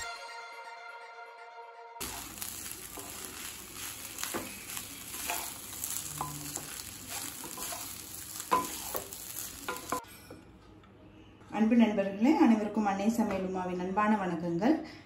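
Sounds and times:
fried rice sizzling in a pan: 2.0 - 10.0
spatula scraping and knocking pan: 2.0 - 10.0.

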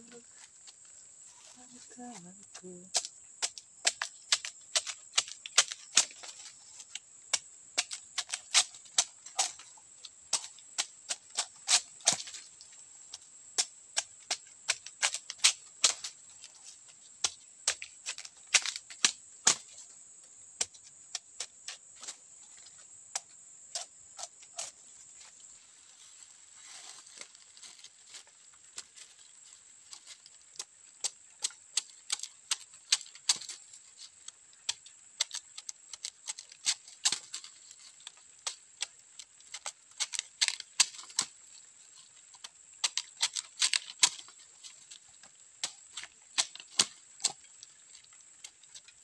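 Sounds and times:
knife chopping bamboo: 2.5 - 9.7, 10.3 - 12.5, 13.6 - 16.2, 17.2 - 19.7, 30.6 - 33.5, 34.7 - 41.3, 42.8 - 44.4, 45.6 - 47.5.

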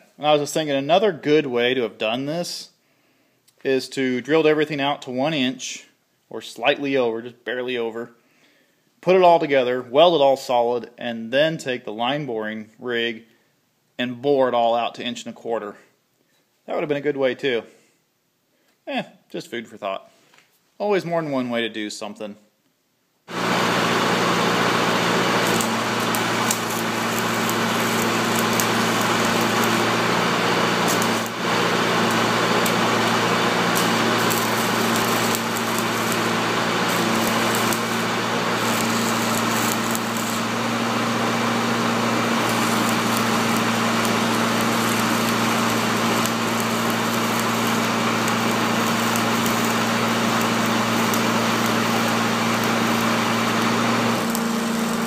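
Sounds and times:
welding arc crackling and hissing: 23.3 - 55.0
steady hum: 23.4 - 41.2.

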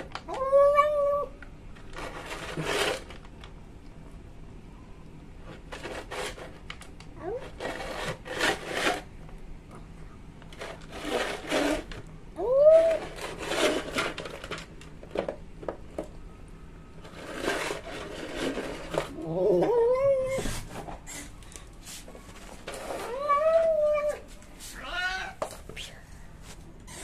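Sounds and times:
cat calling: 0.3 - 1.4, 24.8 - 25.4.

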